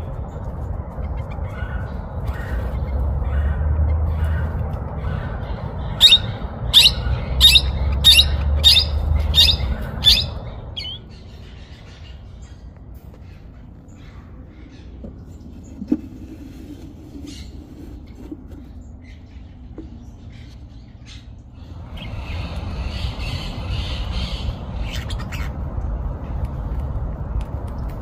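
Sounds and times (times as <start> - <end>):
parrots squawking: 1.2 - 12.1
parrots chirping: 1.2 - 12.6, 22.0 - 25.5.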